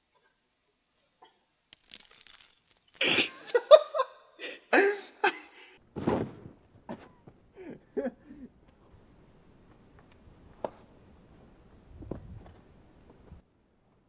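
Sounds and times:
dull thud onto crash pad: 0:06.0 - 0:06.6.

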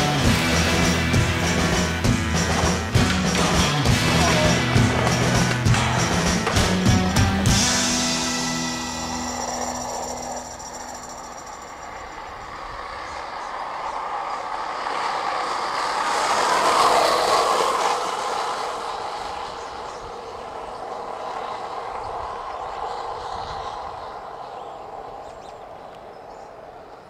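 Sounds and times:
background music: 0:00.0 - 0:11.2
vehicle passing on asphalt: 0:00.0 - 0:27.0.

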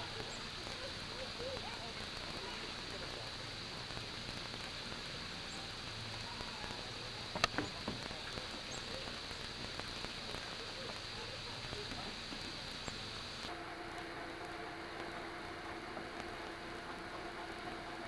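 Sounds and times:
steady outdoor hiss: 0:00.0 - 0:18.0
faint clicks: 0:05.5 - 0:17.8.

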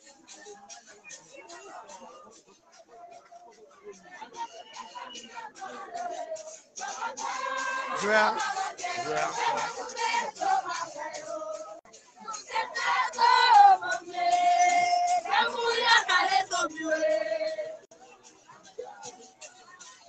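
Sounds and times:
crowd singing loudly: 0:04.0 - 0:17.9.

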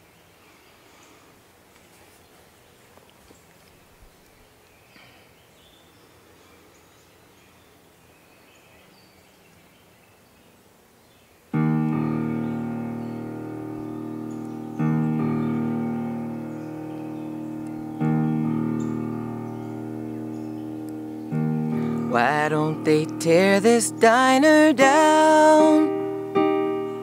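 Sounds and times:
bird chirps: 0:11.1 - 0:27.0
keyboard piano chords: 0:11.5 - 0:27.0.

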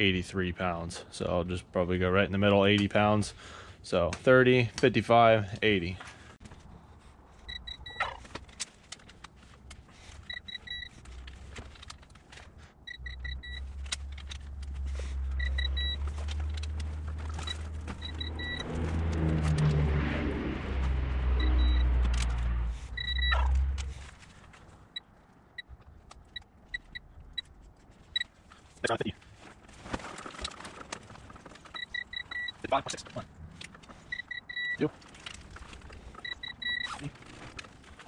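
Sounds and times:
torque wrench high beeps: 0:07.5 - 0:08.2, 0:12.9 - 0:13.7, 0:15.3 - 0:16.1, 0:17.4 - 0:18.6, 0:21.4 - 0:21.9, 0:23.0 - 0:23.5, 0:31.8 - 0:32.7, 0:34.1 - 0:34.8, 0:36.2 - 0:37.0.

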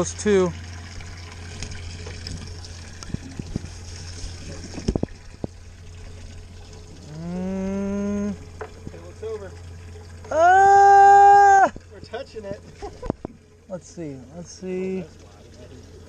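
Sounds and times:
steady low hum: 0:00.0 - 0:16.0
trickling water: 0:00.0 - 0:16.0
person humming: 0:07.0 - 0:08.4.

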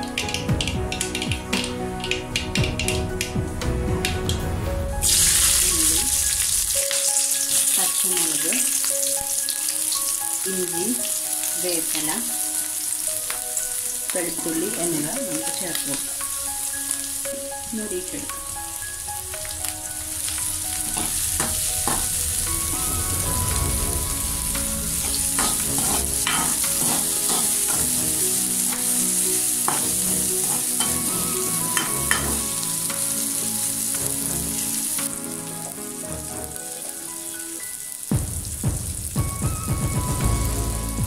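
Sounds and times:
vegetables sizzling in hot oil: 0:05.0 - 0:39.3
metal spoon scraping a pan: 0:25.0 - 0:32.5.

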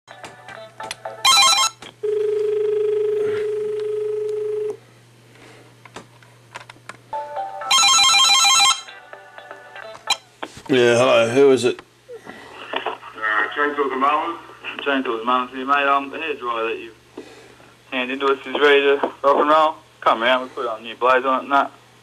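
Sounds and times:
telephone ringing: 0:00.1 - 0:04.8, 0:07.1 - 0:10.3
constant low hum: 0:00.1 - 0:07.7.

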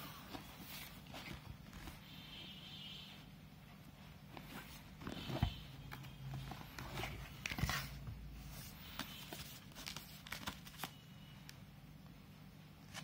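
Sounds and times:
plastic packaging crinkling: 0:09.0 - 0:11.0.

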